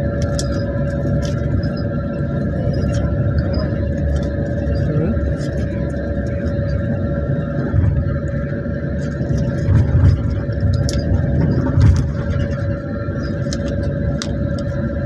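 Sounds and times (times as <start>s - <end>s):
engine and road rumble: 0.0s - 15.0s
steady hum: 0.0s - 15.0s
small rattles and clicks: 9.0s - 14.8s.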